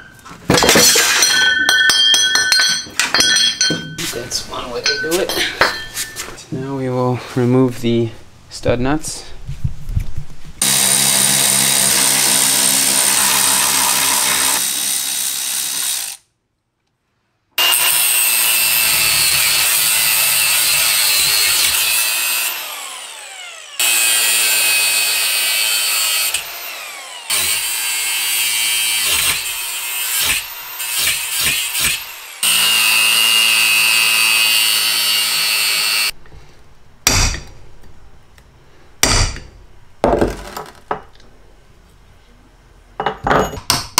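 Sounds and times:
angle grinder cutting steel: 10.6 - 16.2, 17.6 - 36.2.

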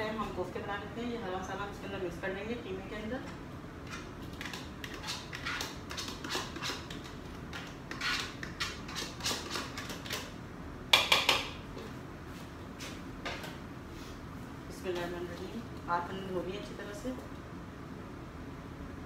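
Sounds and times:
spoon scraping in a bowl: 4.0 - 10.2.

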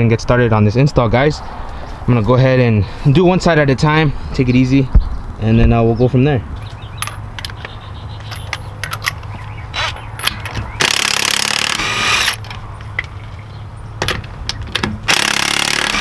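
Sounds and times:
socket clinking on nuts: 7.0 - 9.2
impact wrench hammering: 14.0 - 16.0.

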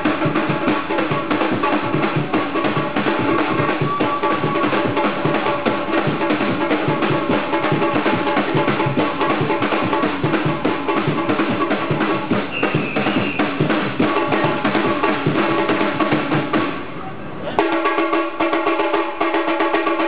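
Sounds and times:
samba drumming: 0.0 - 16.9, 17.6 - 20.0
short high whistle: 12.5 - 13.6.

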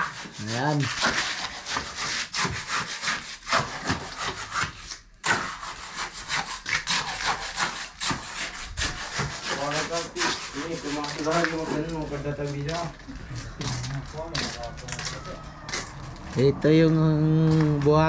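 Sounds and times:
rhythmic rasping scraping strokes: 0.0 - 18.0.

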